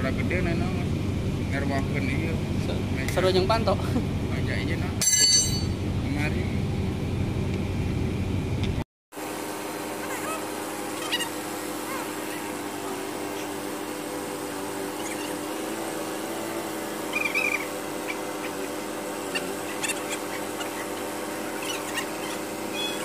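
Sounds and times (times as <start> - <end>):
short high squeaks: 10.0 - 12.6, 14.9 - 15.5, 17.0 - 23.0.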